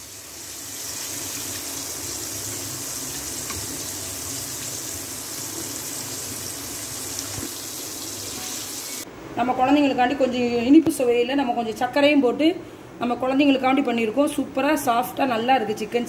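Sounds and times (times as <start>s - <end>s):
food deep-frying in sizzling oil: 0.0s - 9.0s.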